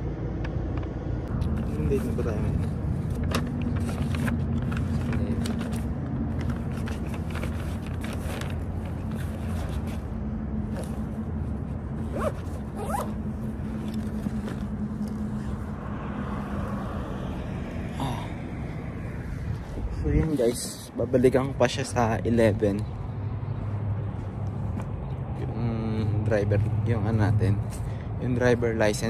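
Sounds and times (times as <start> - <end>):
constant hum: 0.0 - 29.0
sharp clicks and rustles: 0.4 - 15.6.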